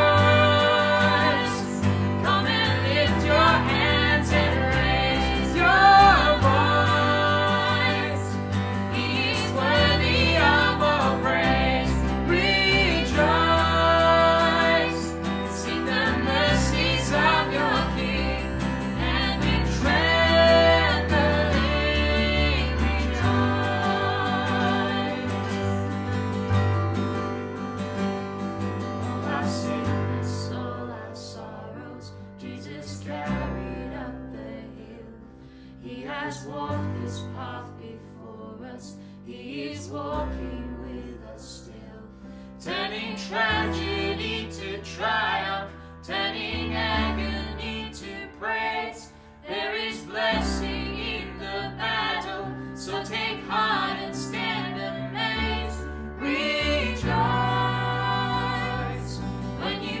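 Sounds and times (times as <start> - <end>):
voices singing: 0.0 - 26.0, 42.6 - 60.0
band with bass and guitar: 0.0 - 30.8, 42.3 - 60.0.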